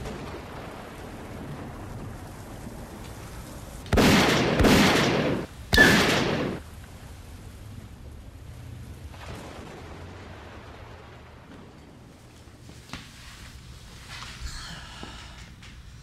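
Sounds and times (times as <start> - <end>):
handgun shots: 4.0 - 6.6.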